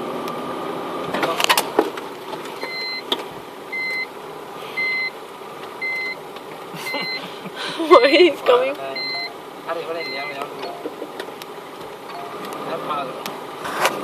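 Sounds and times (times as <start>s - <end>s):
engine running: 0.0s - 14.0s
reversing warning beeps: 2.6s - 3.0s, 3.7s - 4.1s, 4.8s - 5.2s, 5.8s - 6.2s, 6.9s - 7.2s, 8.9s - 11.0s, 12.1s - 12.5s.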